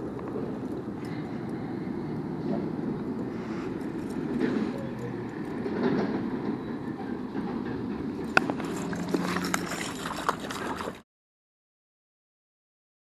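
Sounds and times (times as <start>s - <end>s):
flowing stream: 0.0s - 6.3s, 7.0s - 11.0s.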